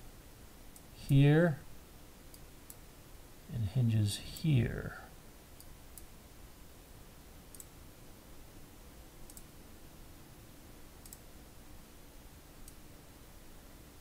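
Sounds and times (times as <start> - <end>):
computer mouse clicking: 7.5 - 7.8, 9.2 - 9.5, 11.0 - 11.3, 12.6 - 12.8.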